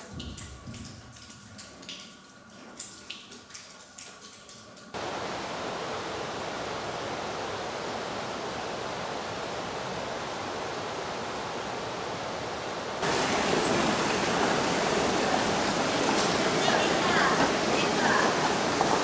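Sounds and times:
rushing river water: 4.9 - 19.0.

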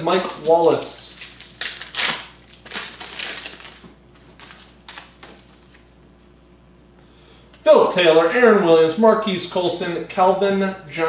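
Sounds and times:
foil wrapper crinkling and tearing: 0.1 - 5.9
cards rustling and clicking: 0.2 - 5.9.

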